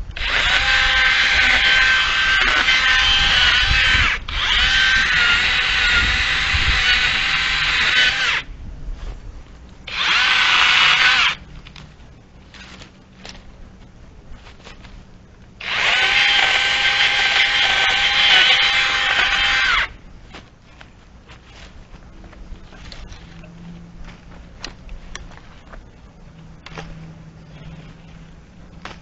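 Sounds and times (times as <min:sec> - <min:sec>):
cordless chainsaw motor whine: 0:00.1 - 0:08.5, 0:09.9 - 0:11.4, 0:15.6 - 0:20.0
branches snapping: 0:26.6 - 0:27.0, 0:28.7 - 0:29.0.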